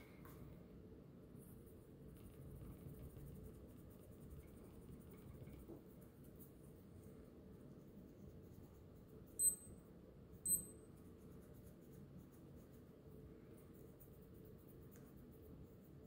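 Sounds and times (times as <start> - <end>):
faint room hiss: 0.0 - 16.0
digital watch beeps: 9.4 - 9.8, 10.5 - 10.8.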